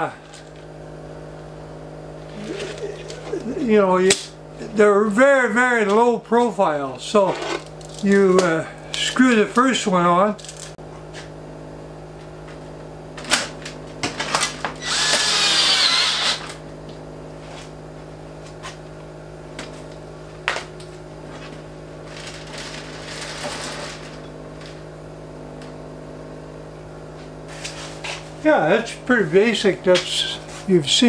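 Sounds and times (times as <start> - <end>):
steady low hum: 0.0 - 31.0
cordless drill driving a screw: 14.8 - 16.6.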